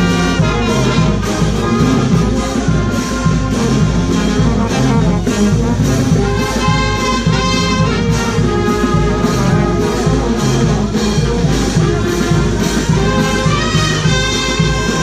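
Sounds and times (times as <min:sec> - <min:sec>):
brass instrumental music: 0:00.0 - 0:15.0
continuous bass line: 0:00.0 - 0:15.0.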